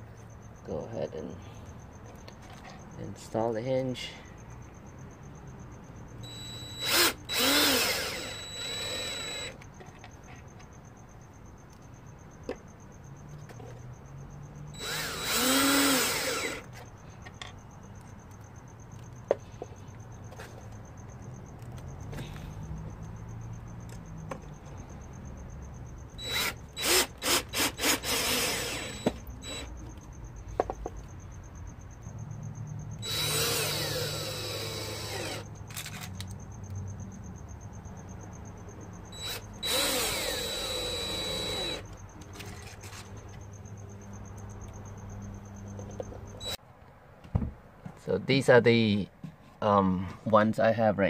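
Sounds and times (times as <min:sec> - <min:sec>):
cordless drill driving screws: 0:06.3 - 0:09.6, 0:14.8 - 0:16.8, 0:26.2 - 0:29.7, 0:33.0 - 0:36.2, 0:39.2 - 0:43.1.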